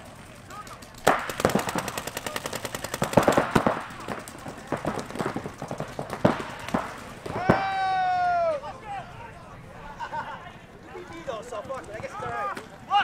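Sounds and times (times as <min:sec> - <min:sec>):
paintball markers firing rapidly: 0:00.6 - 0:07.4.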